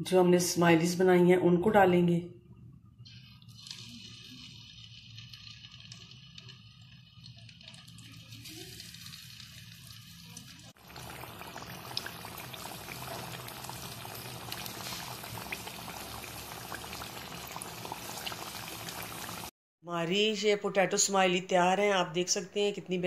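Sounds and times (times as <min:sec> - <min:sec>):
food sizzling in hot oil: 0:03.1 - 0:19.5.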